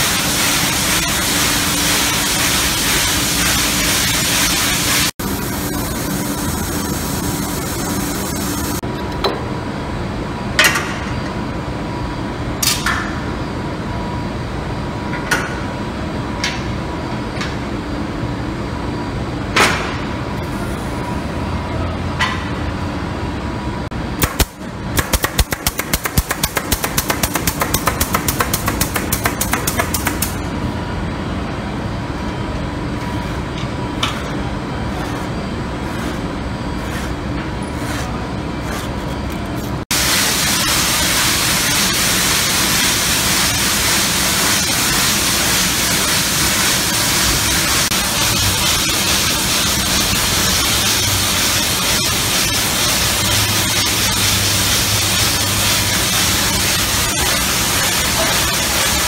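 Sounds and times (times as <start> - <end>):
steady machine hum: 0.0 - 10.6.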